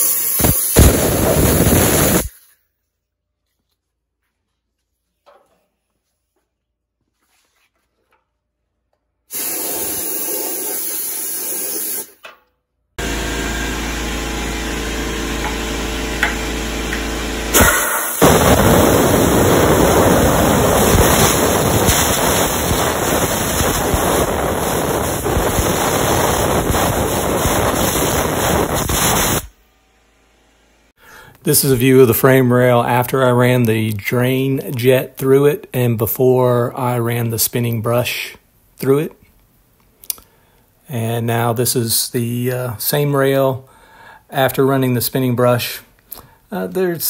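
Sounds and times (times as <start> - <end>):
compressed air hissing: 0.0 - 2.4, 9.3 - 12.2, 17.5 - 29.5.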